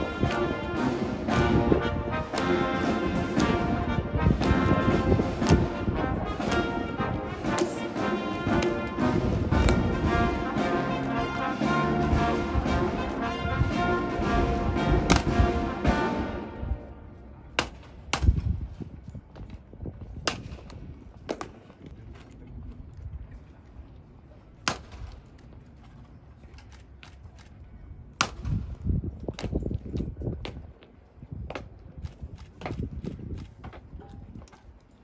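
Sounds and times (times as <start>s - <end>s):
boots knocking on cobblestones: 0.0s - 13.2s, 29.3s - 34.6s
brass band music: 0.0s - 17.3s.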